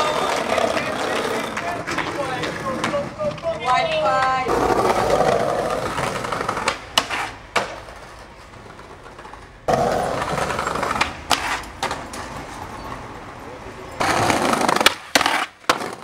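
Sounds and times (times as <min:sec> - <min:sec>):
skateboard clacking on ground: 0:00.0 - 0:13.1, 0:13.9 - 0:16.0
skateboard wheels rolling on paving: 0:00.0 - 0:16.0.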